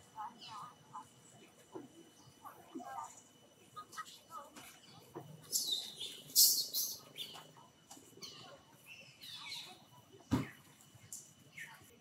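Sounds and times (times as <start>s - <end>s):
thump: 10.3s - 10.6s.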